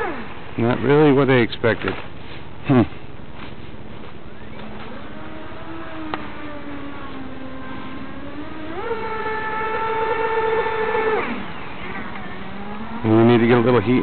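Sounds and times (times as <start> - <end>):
model boat motor whining: 0.0 - 1.2, 4.4 - 14.0.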